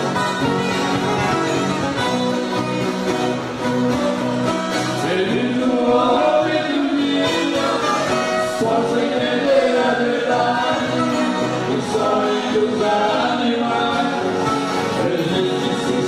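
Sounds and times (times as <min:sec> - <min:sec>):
violas strumming: 0:00.0 - 0:16.0
group of voices singing: 0:04.9 - 0:16.0.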